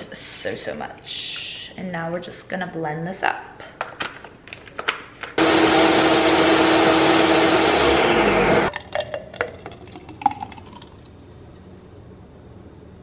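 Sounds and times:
blender running: 5.4s - 8.7s.

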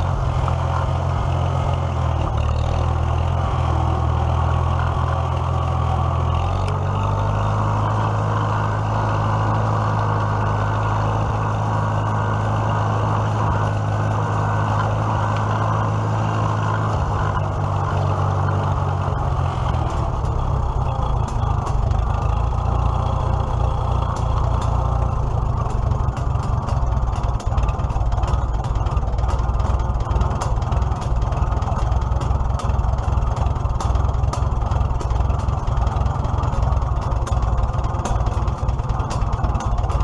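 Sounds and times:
tractor engine running: 0.0s - 40.0s
sharp clicks and rattles: 14.7s - 40.0s.

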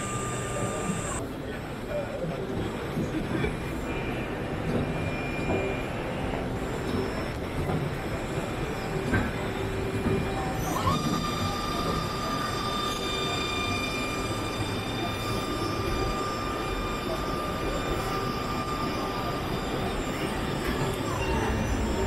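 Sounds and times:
high machine whine: 0.0s - 22.0s.

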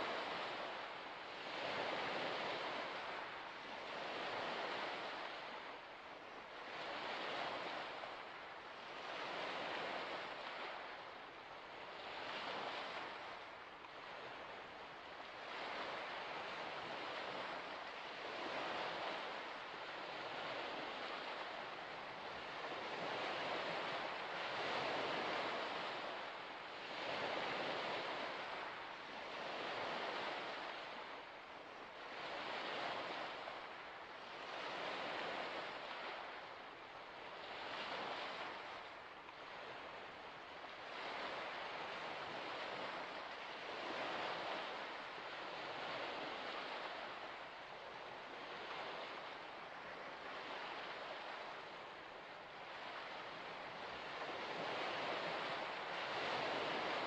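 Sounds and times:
small waves washing ashore: 0.0s - 57.0s.

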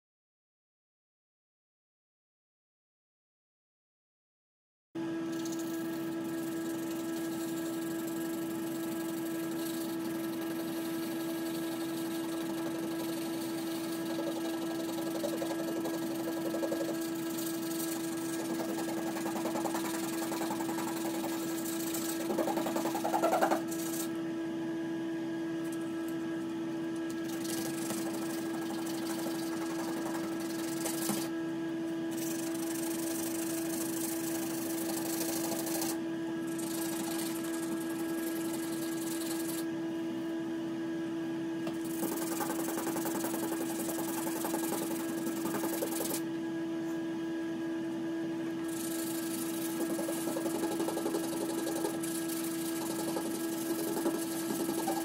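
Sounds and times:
steady low hum: 5.0s - 55.0s
sandpaper rubbing: 5.6s - 24.1s, 27.3s - 31.3s, 32.2s - 39.6s, 41.8s - 46.2s, 48.7s - 55.0s.

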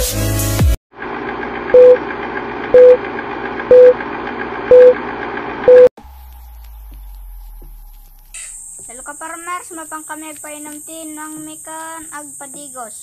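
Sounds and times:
short mid-pitched beeps: 1.8s - 2.0s, 2.8s - 3.0s, 3.7s - 4.0s, 4.7s - 5.0s, 5.7s - 5.9s.

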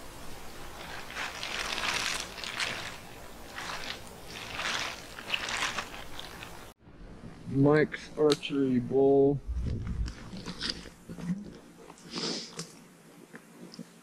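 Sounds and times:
rustling and crunching in brush: 0.0s - 6.8s.

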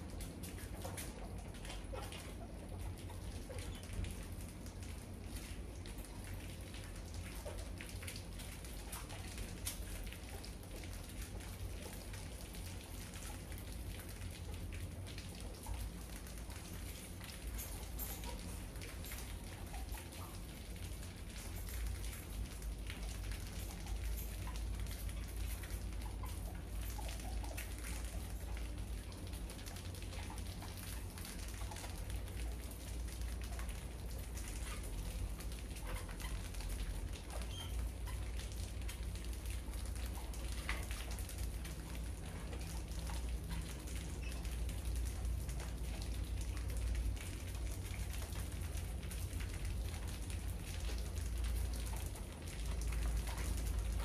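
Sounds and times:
mice scurrying: 0.0s - 54.0s
faint mouse squeaks: 0.6s - 4.2s, 34.4s - 38.6s, 41.9s - 44.8s.

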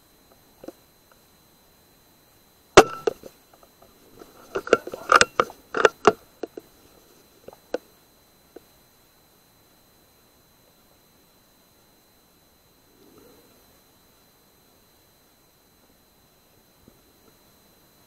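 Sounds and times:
air rifle handling clicks and knocks: 2.8s - 3.3s, 4.2s - 6.7s.

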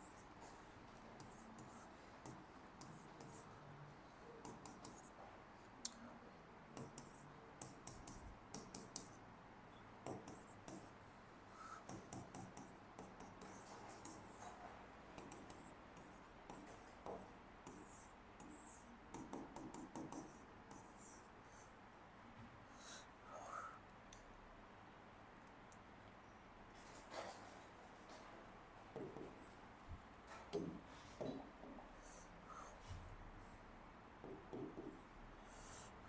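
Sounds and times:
pen scratching on paper: 1.2s - 3.5s, 4.4s - 5.1s, 6.8s - 9.2s, 10.1s - 11.0s, 11.6s - 14.6s, 15.2s - 21.3s.

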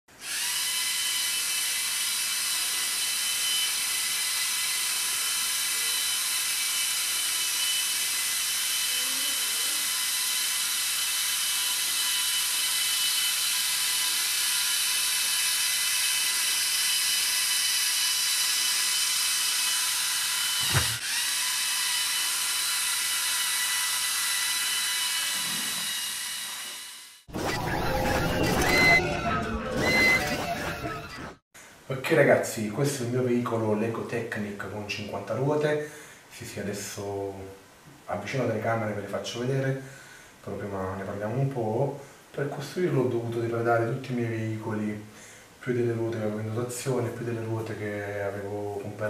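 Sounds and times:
toy motors and gears whining: 0.2s - 31.3s.

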